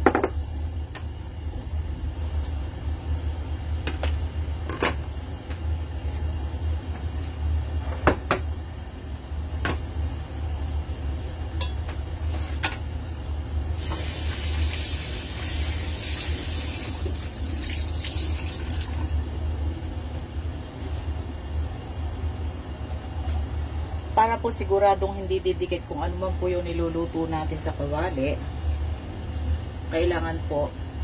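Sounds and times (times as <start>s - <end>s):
gas burner low rumble: 0.0s - 31.0s.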